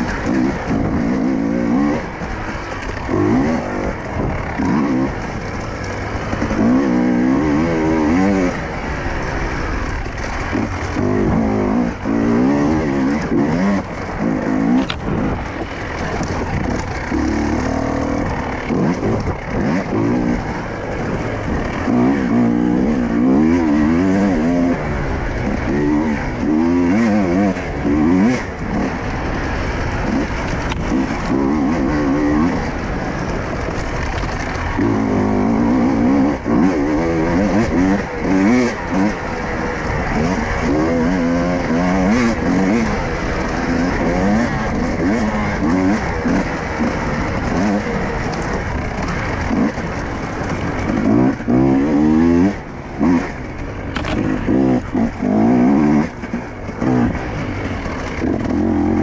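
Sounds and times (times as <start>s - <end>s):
motorcycle engine revving: 0.0s - 59.0s
steady rush of noise: 0.0s - 59.0s.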